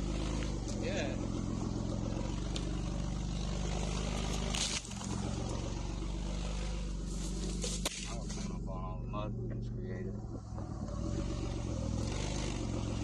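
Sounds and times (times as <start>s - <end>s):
tyres rolling over leaves: 0.0s - 8.7s
car engine running: 0.0s - 13.0s.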